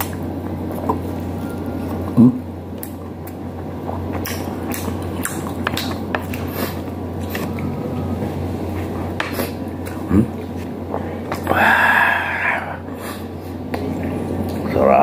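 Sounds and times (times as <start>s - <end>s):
wet chewing and lip-smacking: 0.0s - 7.7s
steady low hum: 0.0s - 15.0s.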